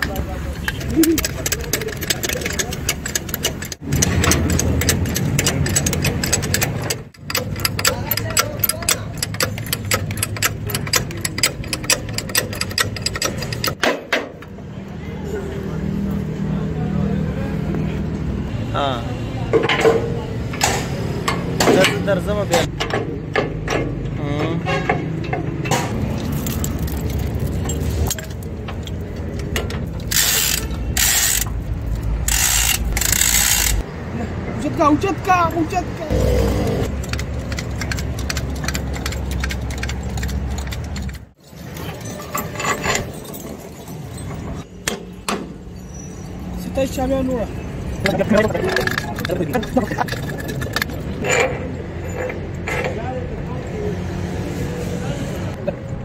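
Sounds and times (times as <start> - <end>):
hand tools clicking on metal: 0.0 - 13.9, 25.2 - 33.8, 36.4 - 44.3, 48.1 - 51.5.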